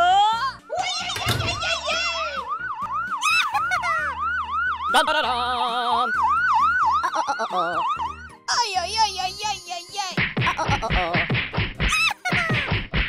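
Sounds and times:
electronic siren wailing: 1.8 - 8.4.

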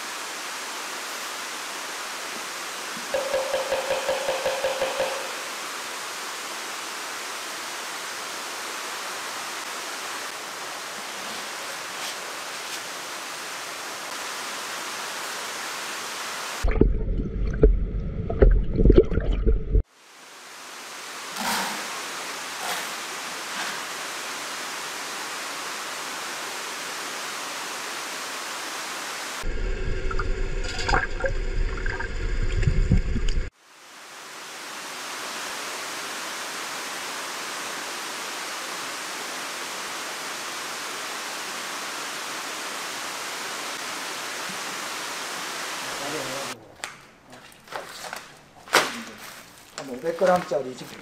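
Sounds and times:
rumbling and knocks: 3.1 - 5.5
water rushing into tank: 29.4 - 33.5.

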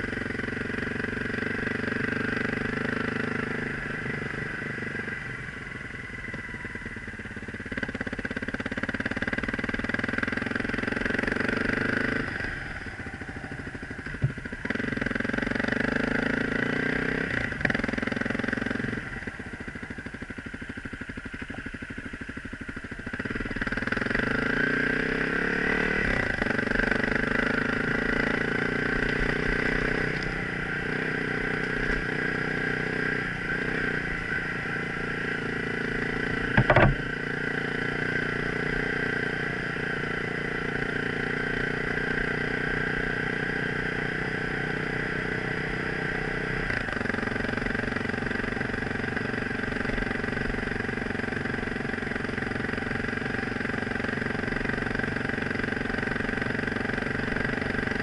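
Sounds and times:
motorcycle engine running: 0.0 - 58.0
sharp knock: 36.5 - 37.0.

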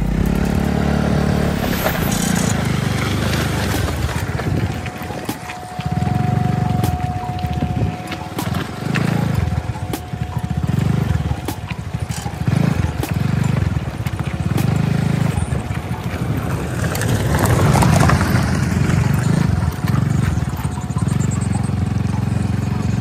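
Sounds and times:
engine throbbing: 0.0 - 23.0.

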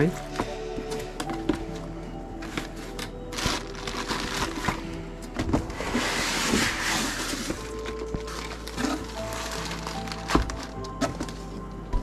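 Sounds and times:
background music: 0.0 - 12.0
plastic rustling: 2.4 - 11.6
cardboard packaging knocks and scraping: 2.4 - 12.0.

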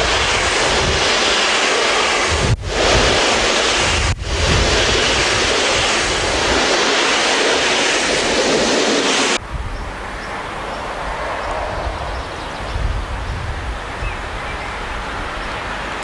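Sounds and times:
wind buffeting microphone: 0.0 - 16.0
train coaches rushing past: 6.4 - 13.3.

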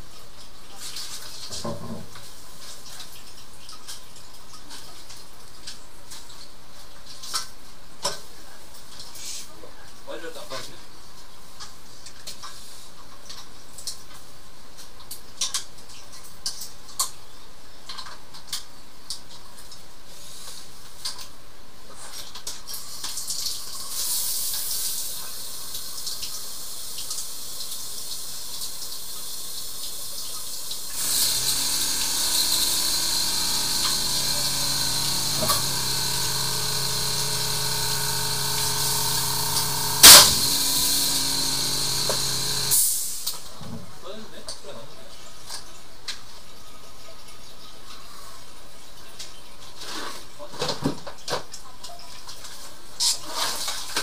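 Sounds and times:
drain machine motor humming: 30.9 - 43.1.

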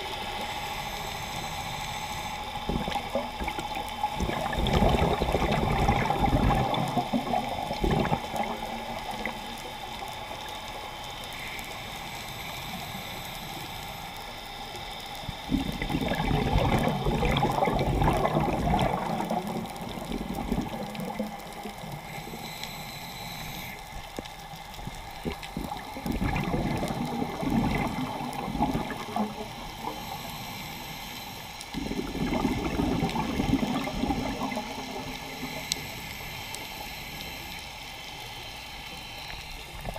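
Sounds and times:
exhaled air bubbles gurgling: 2.5 - 10.5, 15.4 - 22.5, 24.8 - 30.4, 31.6 - 36.1
underwater wash of water: 2.5 - 10.8, 15.4 - 22.5, 23.8 - 37.5.

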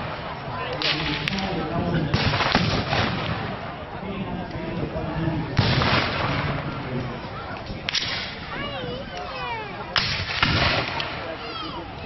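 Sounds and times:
rifle shots with echo: 0.0 - 3.7, 5.6 - 6.7, 10.0 - 11.3.

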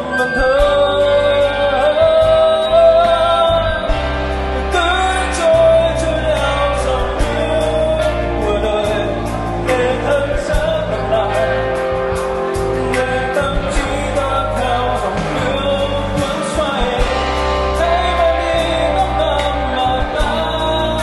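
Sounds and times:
live rock band playing: 0.0 - 21.0
singer's voice: 0.0 - 21.0.

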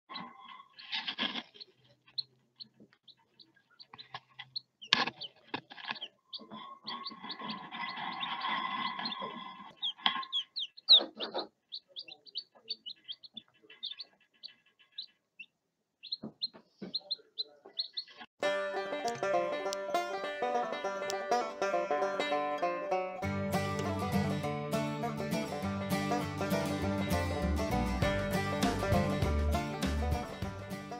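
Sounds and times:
chicks peeping: 0.1 - 18.3
rustling: 0.6 - 11.5
banjo music: 18.4 - 30.9.

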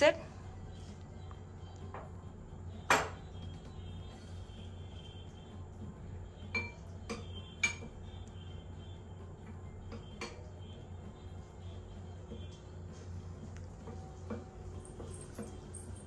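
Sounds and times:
metal spoon clinking on glass bowl: 6.5 - 7.9, 14.8 - 16.0.

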